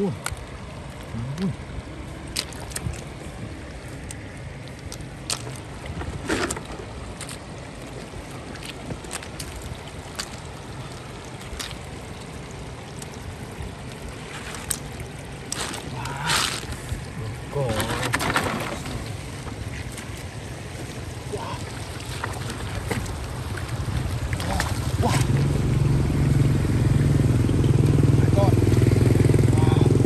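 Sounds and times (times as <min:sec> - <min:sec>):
floodwater sloshing and splashing: 0:00.0 - 0:29.6
short sharp splashes or knocks: 0:17.8 - 0:19.5, 0:21.6 - 0:25.4.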